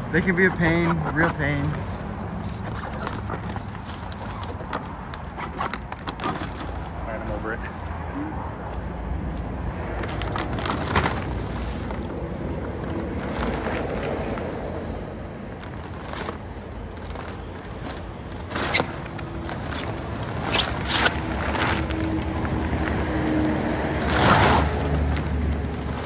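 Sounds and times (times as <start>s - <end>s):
plastic cover crinkling: 10.0s - 26.0s.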